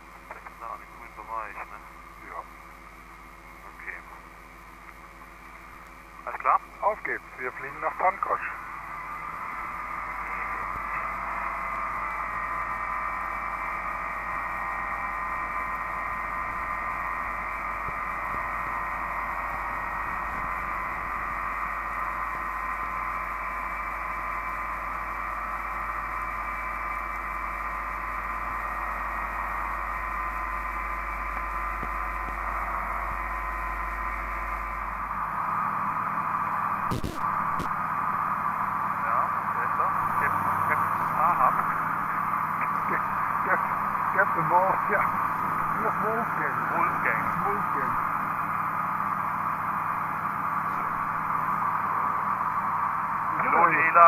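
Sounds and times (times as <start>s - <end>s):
aircraft engine and propeller: 0.0s - 35.6s.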